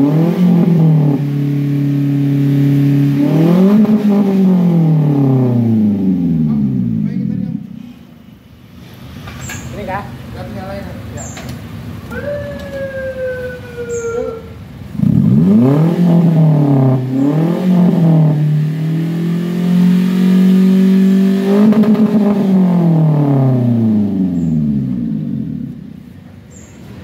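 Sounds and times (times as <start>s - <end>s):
pickup engine revving: 0.0s - 7.8s, 14.8s - 26.1s.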